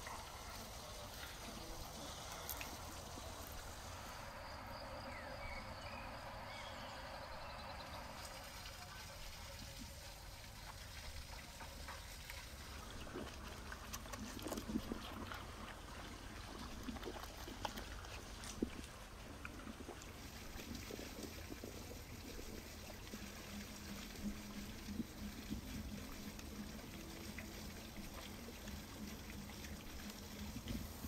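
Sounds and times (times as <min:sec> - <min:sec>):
goat munching watermelon: 0:00.0 - 0:03.9, 0:10.6 - 0:31.0
bird chirps: 0:04.3 - 0:08.2.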